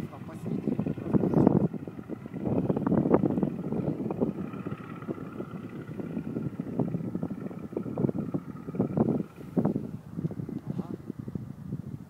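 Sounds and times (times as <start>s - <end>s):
distant propeller plane engine: 0.0s - 12.0s
wind buffeting microphone: 0.0s - 12.0s.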